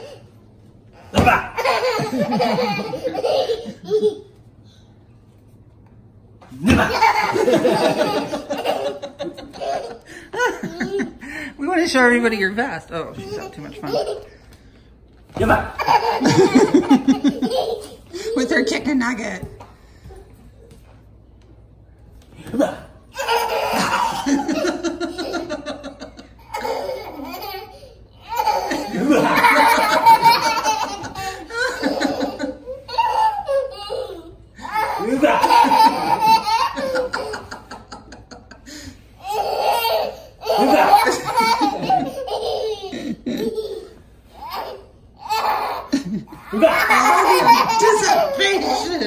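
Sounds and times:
toddler laughing: 1.2 - 4.4, 15.6 - 18.5, 22.6 - 49.0.

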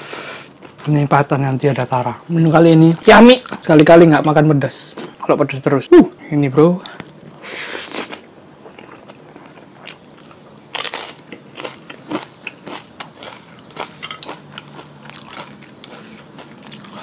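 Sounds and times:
wet chewing: 8.0 - 17.0.

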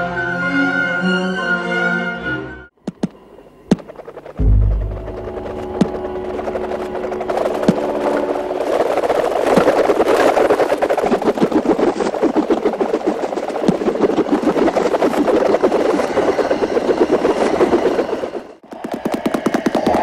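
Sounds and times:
fast-pulsing machine-like throb: 2.9 - 20.0.

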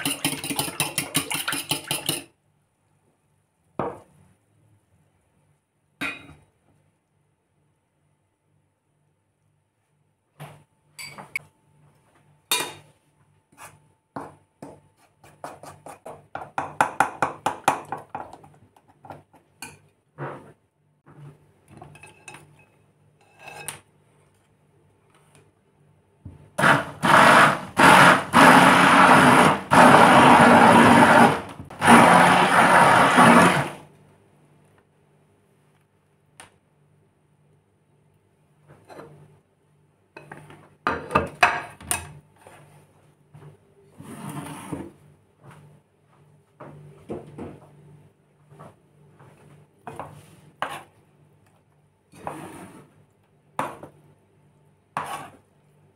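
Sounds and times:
electric mixer running: 26.6 - 33.8.

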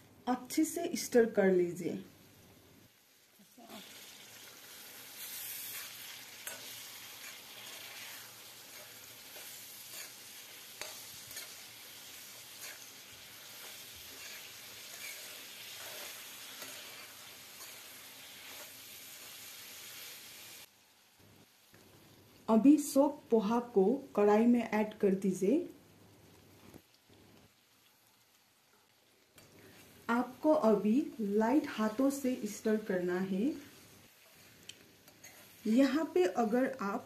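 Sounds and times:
vegetables sizzling in hot oil: 0.3 - 37.0
spoon scraping and clicking on pan: 5.3 - 18.8, 34.2 - 35.6.

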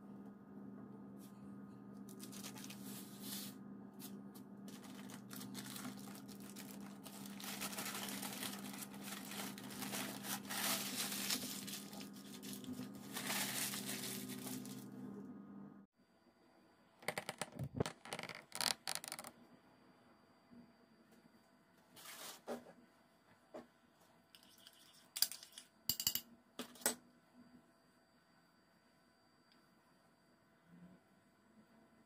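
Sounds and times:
parchment paper crinkling: 2.1 - 3.2, 4.7 - 14.9.

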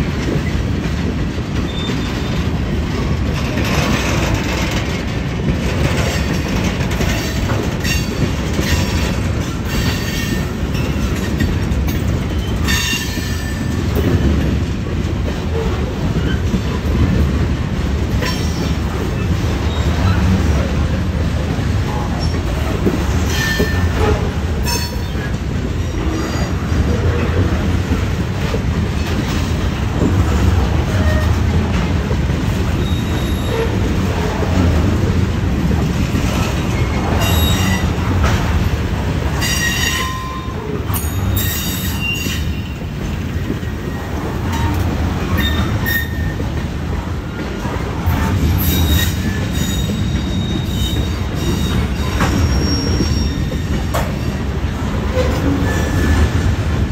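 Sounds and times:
train cars clanking: 0.0 - 56.9
train wheels rumbling on rail: 0.0 - 56.9
high-pitched wheel squeals: 48.6 - 53.5.

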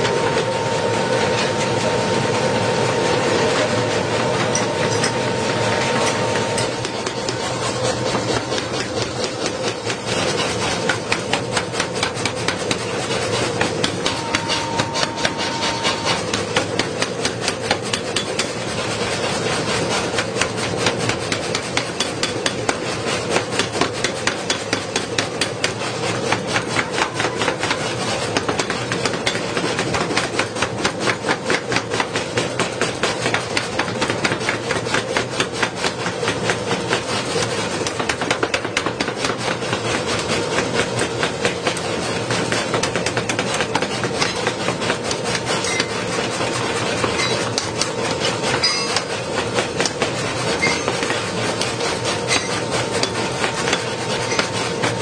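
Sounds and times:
steady machine hum: 0.0 - 55.0
hammer striking metal: 4.4 - 18.7, 23.6 - 36.5, 47.0 - 49.2, 52.3 - 55.0.

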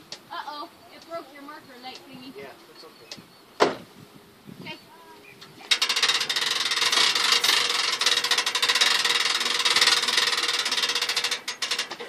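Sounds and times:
winch ratchet clicking: 5.6 - 12.0.

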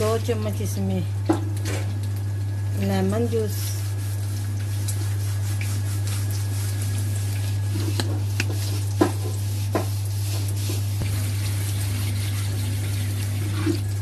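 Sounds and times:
low hum with hiss: 0.0 - 14.0.

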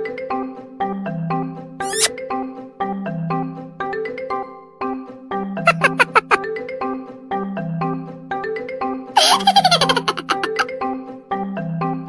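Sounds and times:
short high squeaky notes: 1.8 - 2.1
light marimba-like background music: 2.9 - 12.0.

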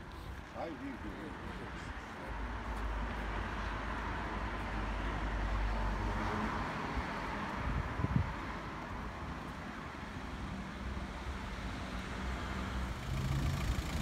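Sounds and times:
wind rumble on microphone: 7.6 - 8.6
vehicle passing: 11.6 - 14.0.

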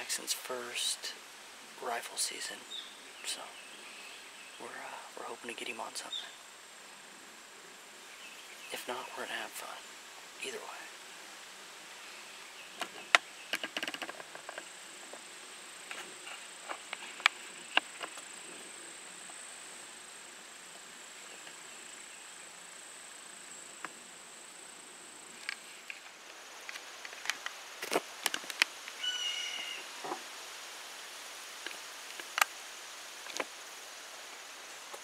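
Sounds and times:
handling clicks and rustles: 12.8 - 18.3, 25.4 - 28.8.

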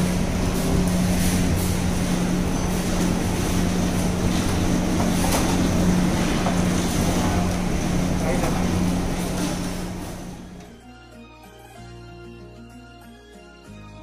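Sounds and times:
low machine hum: 0.0 - 10.8
noisy background: 0.0 - 14.0.

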